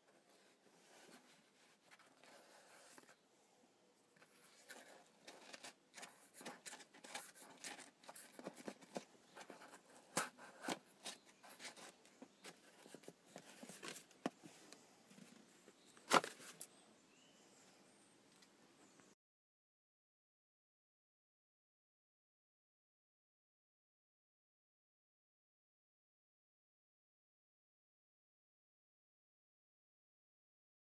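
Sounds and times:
cardboard rubbing and scraping: 0.2s - 3.1s, 4.2s - 14.1s.

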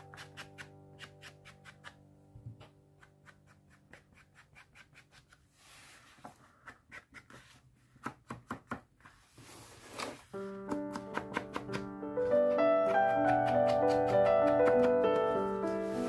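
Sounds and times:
brushing on paper: 3.5s - 6.6s, 15.1s - 16.0s.

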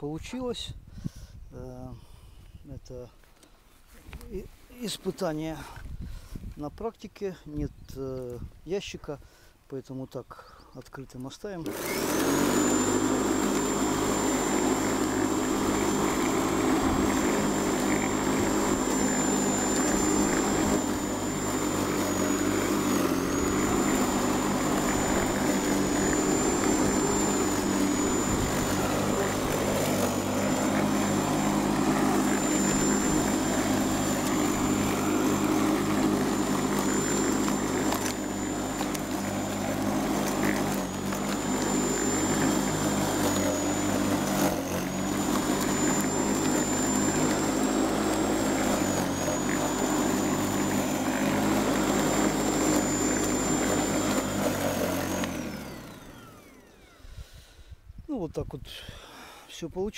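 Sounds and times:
electric lawnmower cutting grass: 11.5s - 57.2s.

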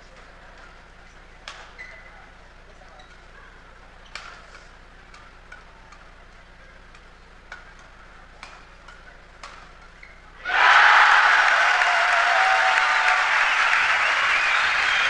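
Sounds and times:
rackets striking shuttlecock: 6.9s - 10.0s.

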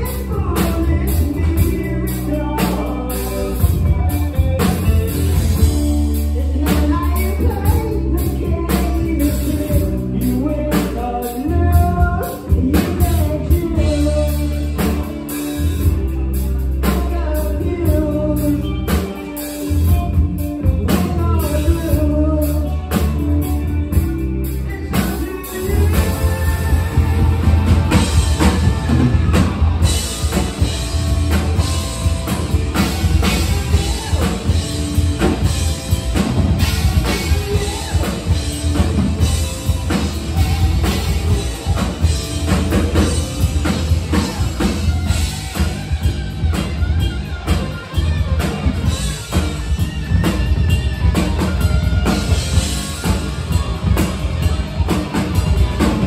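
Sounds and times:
bass guitar: 0.0s - 56.0s
drum kit: 0.0s - 56.0s
electric guitar: 0.0s - 56.0s
lead vocals singing: 24.0s - 43.2s.

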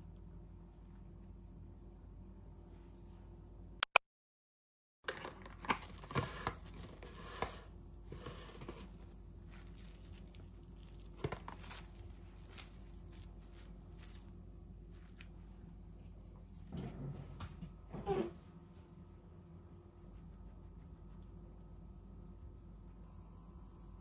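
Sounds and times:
cling wrap crinkling: 5.1s - 7.5s, 8.1s - 14.3s.

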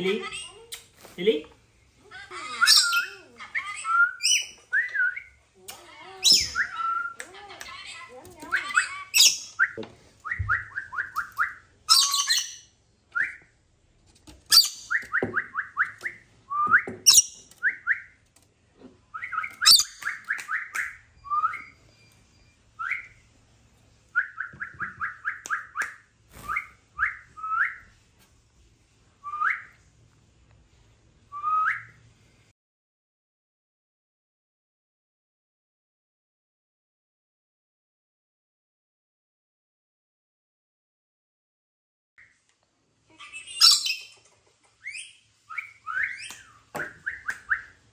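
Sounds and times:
parrot chirping: 2.1s - 13.4s, 14.5s - 18.2s, 19.1s - 23.3s, 43.1s - 47.9s.

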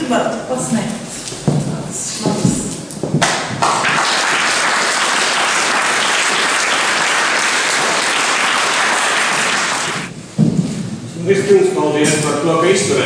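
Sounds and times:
audience applauding: 3.6s - 10.1s.

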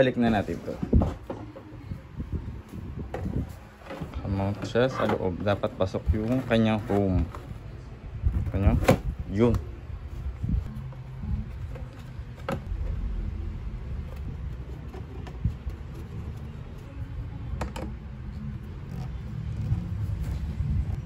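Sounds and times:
steady low rumble: 7.5s - 21.0s.

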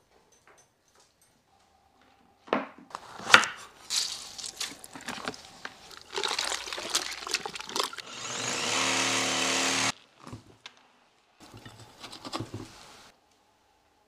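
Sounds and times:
water splashing in a bucket: 3.9s - 8.1s
cordless electric saw cutting: 8.0s - 10.0s.

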